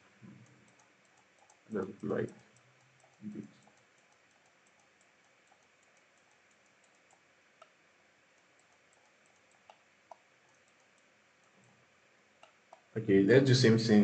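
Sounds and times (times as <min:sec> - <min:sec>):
computer keyboard and mouse clicks: 0:00.0 - 0:11.7, 0:12.4 - 0:12.9.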